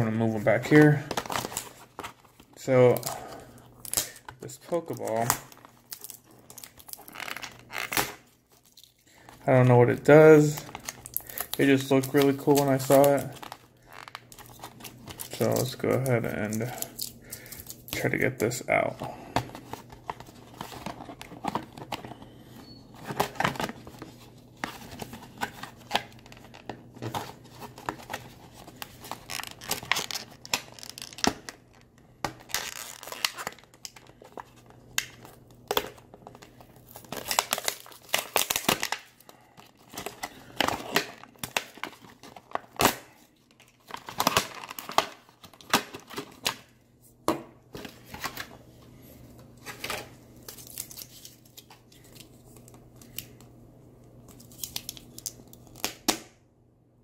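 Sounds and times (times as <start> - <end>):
plastic blister pack crinkling: 0.3 - 46.7, 54.2 - 56.0.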